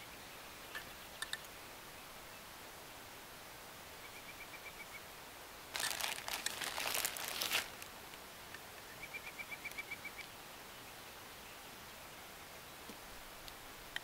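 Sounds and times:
paper crinkling: 5.7s - 7.9s.

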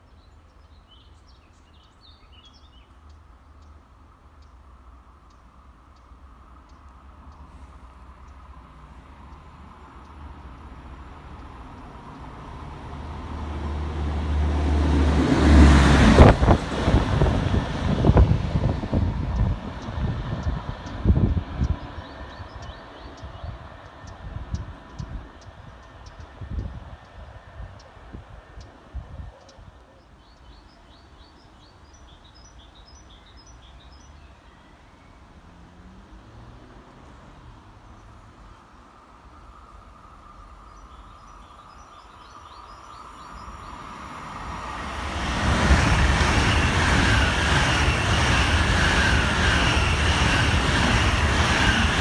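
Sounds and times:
songbird chirping: 0.0s - 7.5s, 19.3s - 26.4s, 27.0s - 36.0s, 39.6s - 45.0s
train passing at speed: 1.7s - 52.0s.

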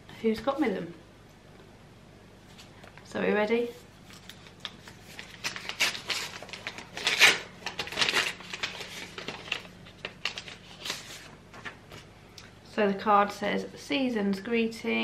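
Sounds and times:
paper rustling and crinkling: 4.0s - 12.1s.

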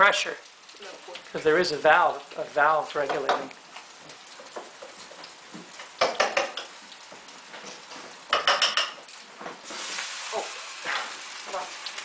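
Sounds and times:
sausages sizzling: 0.0s - 12.0s
metal utensil clinking on a pan: 8.3s - 9.0s.

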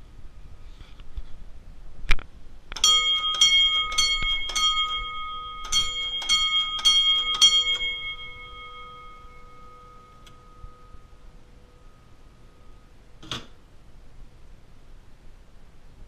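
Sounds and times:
fire alarm bells ringing: 2.8s - 13.0s.

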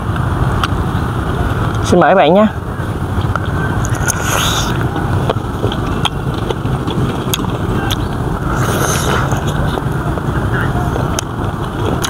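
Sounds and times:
steady low rumble: 0.0s - 12.0s
mouth clicks: 3.3s - 9.8s
close chewing with crunches: 3.4s - 10.2s.

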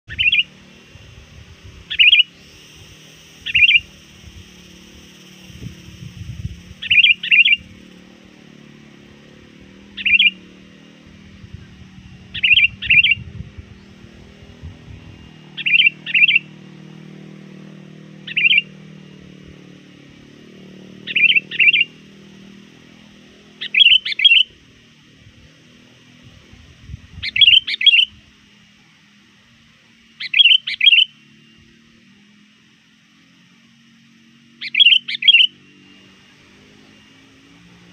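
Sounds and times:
bulbul calling: 0.1s - 28.8s, 30.0s - 31.8s, 34.4s - 37.9s.

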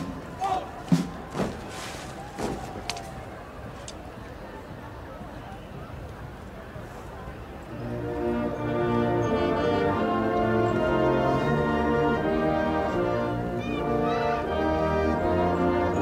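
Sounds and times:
brass band playing a march: 7.8s - 16.0s.

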